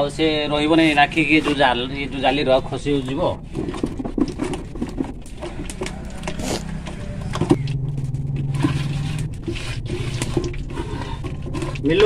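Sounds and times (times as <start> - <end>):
batter beaten in a steel bowl: 0.0 - 12.0
low engine hum: 4.6 - 12.0.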